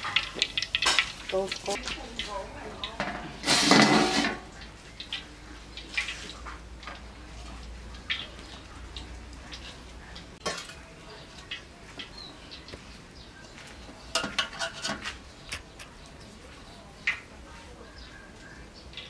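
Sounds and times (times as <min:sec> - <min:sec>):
metal bowl and plate clinking: 0:00.0 - 0:02.0, 0:02.9 - 0:04.6, 0:10.4 - 0:10.9, 0:14.1 - 0:15.2.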